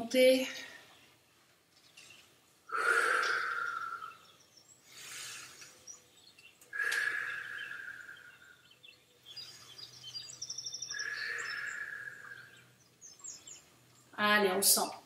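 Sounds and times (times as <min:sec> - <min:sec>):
rapid bird trill: 0:02.7 - 0:13.7.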